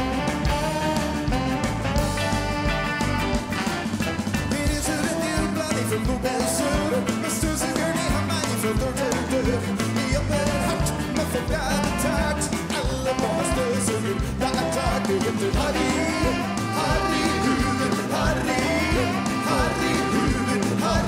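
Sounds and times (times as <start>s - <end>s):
live rock band playing: 0.0s - 21.0s
man singing: 4.4s - 21.0s.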